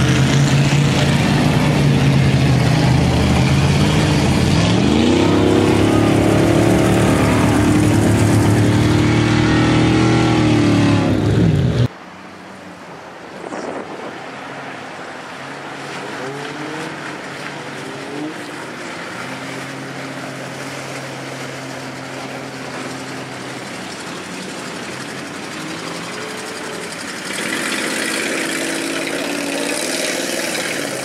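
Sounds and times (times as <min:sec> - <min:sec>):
truck engine revving hard: 0:00.0 - 0:11.9, 0:24.4 - 0:31.0
quiet engine: 0:19.4 - 0:31.0.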